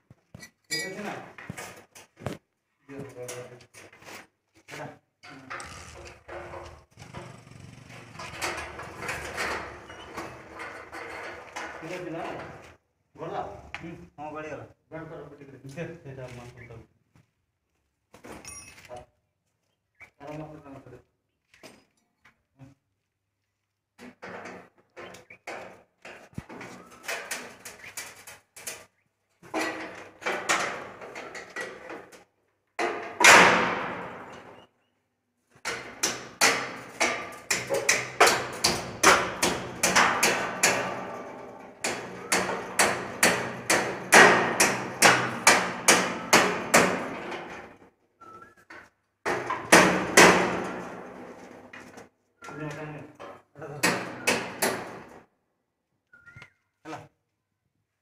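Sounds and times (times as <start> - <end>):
metal shutter rattling: 5.3 - 12.7, 24.2 - 32.2, 35.6 - 47.8, 49.2 - 52.0, 53.8 - 55.2.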